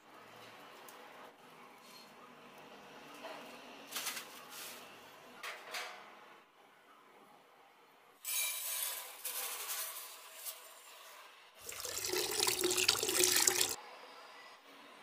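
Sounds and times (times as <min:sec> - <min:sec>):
sugar pouring into a pan: 0:11.6 - 0:13.8
water pouring onto sugar: 0:11.6 - 0:13.8.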